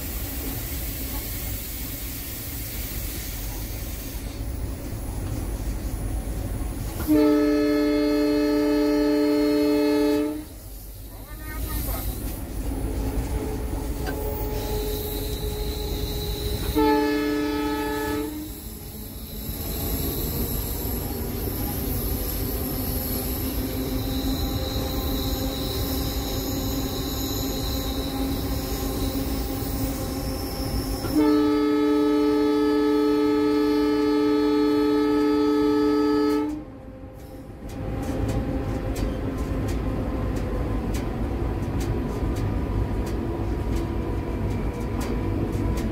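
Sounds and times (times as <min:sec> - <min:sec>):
locomotive rumble: 0:00.0 - 0:45.9
locomotive air horn blasts: 0:07.0 - 0:10.6, 0:13.4 - 0:19.0, 0:30.9 - 0:36.7.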